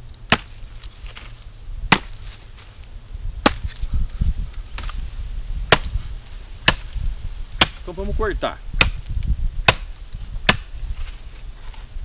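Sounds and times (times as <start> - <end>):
machete chopping wood: 0.2 - 1.3, 1.9 - 2.4, 3.4 - 3.8, 5.7 - 6.0, 6.6 - 7.0, 7.6 - 8.0, 8.8 - 10.7.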